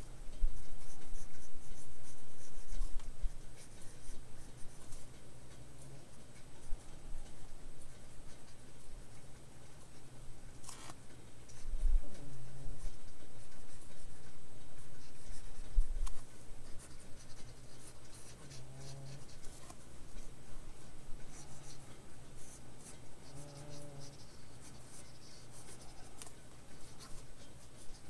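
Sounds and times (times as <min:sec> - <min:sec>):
pencil scratching on paper: 0:00.4 - 0:05.1, 0:10.6 - 0:28.0.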